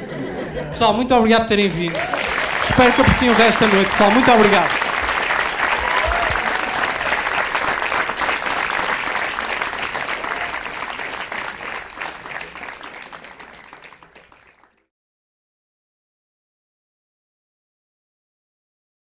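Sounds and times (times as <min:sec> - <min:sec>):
audience applauding: 0:01.5 - 0:14.8.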